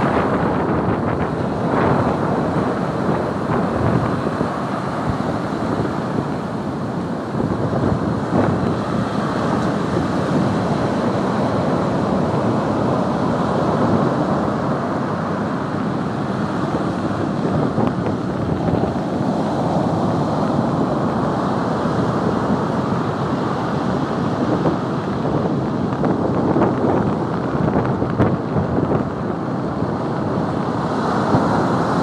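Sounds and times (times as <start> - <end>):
heavy surf breaking: 0.0 - 32.0
wind buffeting microphone: 0.0 - 32.0.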